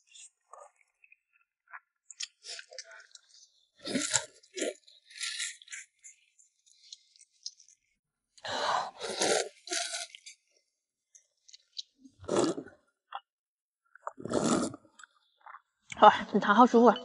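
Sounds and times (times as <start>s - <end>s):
chewing and mouth noises: 0.1s - 8.0s.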